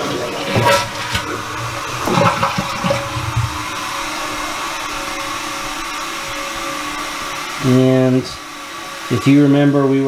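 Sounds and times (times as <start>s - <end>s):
toilet tank refilling hiss: 0.0s - 10.0s.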